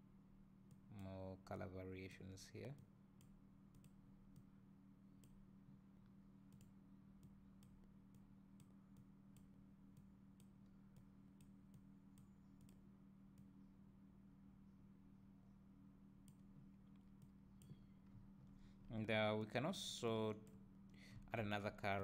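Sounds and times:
low steady hum: 0.0 - 22.0
faint mouse clicks: 2.7 - 4.5, 5.2 - 5.4, 6.5 - 13.5, 16.2 - 18.2.

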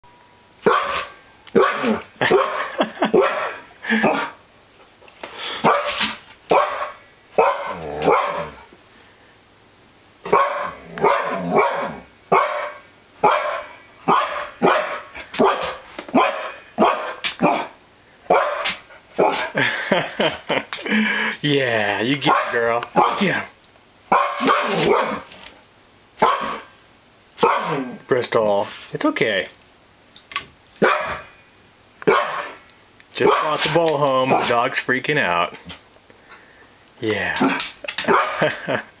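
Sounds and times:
dog barking: 0.6 - 4.3, 5.6 - 8.6, 10.3 - 19.6, 22.3 - 23.2, 24.1 - 25.3, 26.2 - 26.7, 27.4 - 27.9, 30.8 - 31.3, 32.1 - 32.6, 33.2 - 33.6, 37.4 - 38.6.

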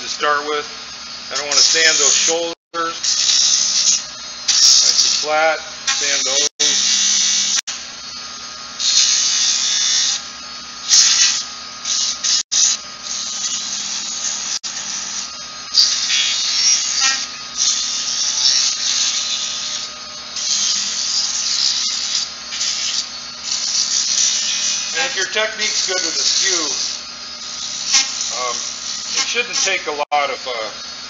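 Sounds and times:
sandpaper hissing on spinning wood: 17.6 - 30.6.

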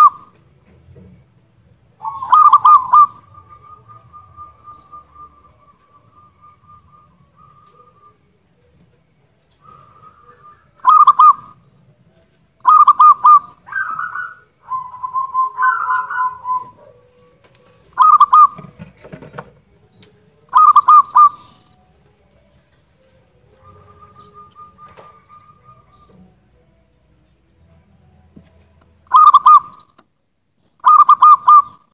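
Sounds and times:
dove cooing: 0.0 - 0.4, 2.0 - 8.3, 9.6 - 19.5, 20.4 - 21.8, 23.4 - 26.4, 29.0 - 29.8, 30.8 - 31.8.

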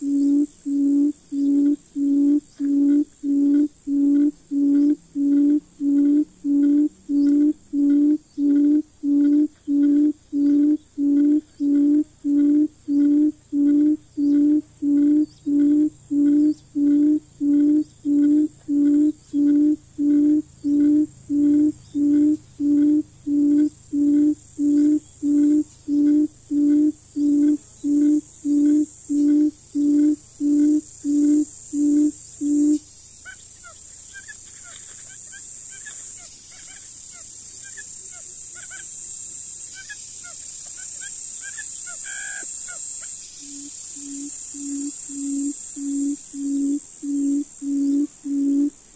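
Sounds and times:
bird low hooting call: 0.0 - 32.9, 43.4 - 48.9
high insect hiss: 0.0 - 48.9.

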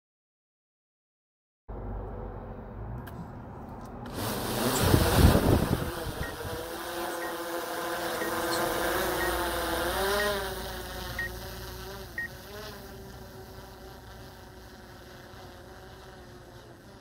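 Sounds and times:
drone propellers buzzing: 4.0 - 17.0.

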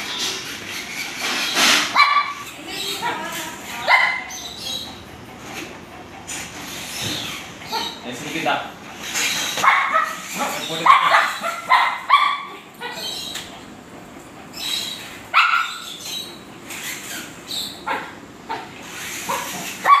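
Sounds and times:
small dog barking: 2.0 - 2.4, 3.8 - 4.3, 9.6 - 10.2, 10.8 - 13.0, 15.3 - 15.8, 17.9 - 18.7, 19.3 - 20.0.

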